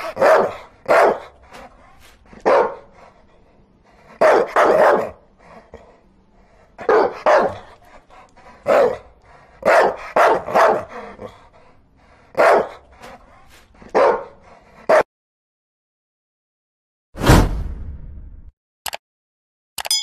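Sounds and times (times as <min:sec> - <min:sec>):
dog barking: 0:00.0 - 0:01.4, 0:02.4 - 0:03.0, 0:04.2 - 0:05.2, 0:06.8 - 0:07.7, 0:08.6 - 0:11.1, 0:12.3 - 0:12.8, 0:13.8 - 0:15.1.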